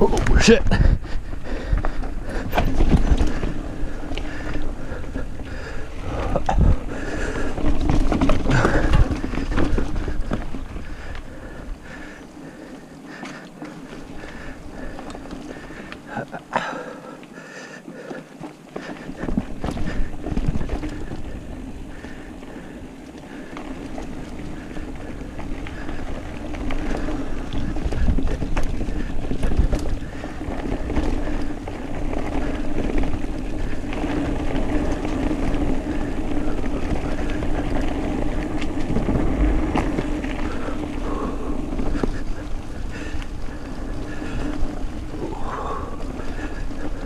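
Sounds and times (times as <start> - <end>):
bike knocks and rattles: 0.0 - 12.1, 18.8 - 22.2
wind rumble: 0.0 - 16.5, 18.8 - 47.0
bike tyres on dirt: 0.0 - 47.0.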